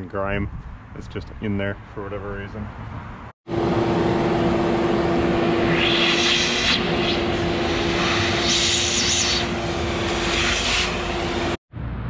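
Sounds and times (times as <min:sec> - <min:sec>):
shop vacuum motor hum: 0:03.5 - 0:11.6
air rushing into vacuum nozzle: 0:04.6 - 0:11.6.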